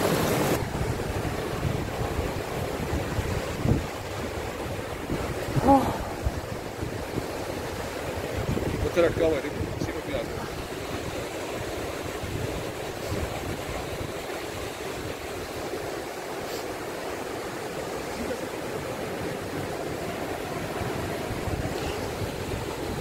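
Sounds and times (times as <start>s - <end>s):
river rushing over rocks: 0.0s - 23.0s.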